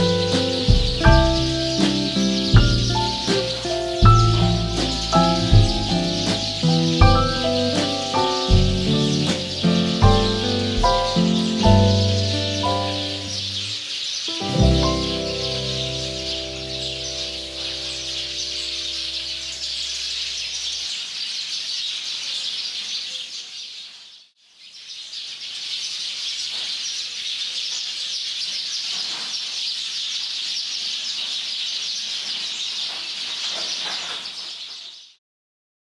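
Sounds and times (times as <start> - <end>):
flock of birds chirping: 0.0 - 35.2.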